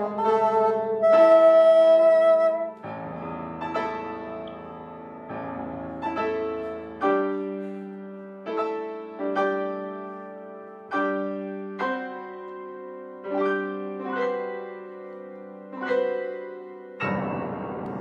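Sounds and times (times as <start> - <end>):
grand piano chords: 0.0 - 18.0.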